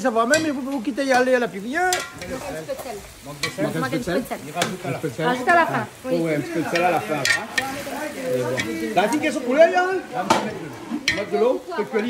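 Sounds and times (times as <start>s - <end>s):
pot of stew being stirred: 0.0s - 12.0s
voices chatting: 0.0s - 12.0s
utensils clinking: 0.2s - 2.7s, 3.4s - 9.6s, 10.2s - 12.0s.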